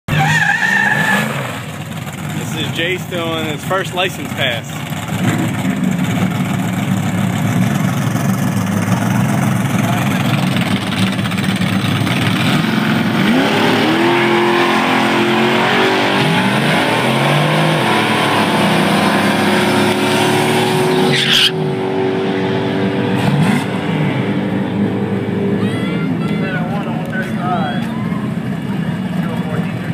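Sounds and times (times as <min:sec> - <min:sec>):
tyres spinning and squealing: 0:00.1 - 0:02.8, 0:21.0 - 0:21.6
car engine at high revs: 0:00.1 - 0:29.9.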